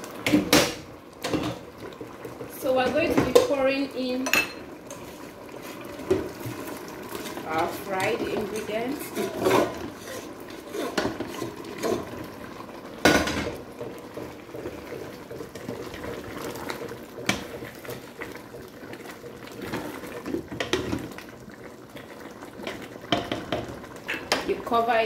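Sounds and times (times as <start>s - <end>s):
spoon scraping metal pots: 8.0s - 12.2s.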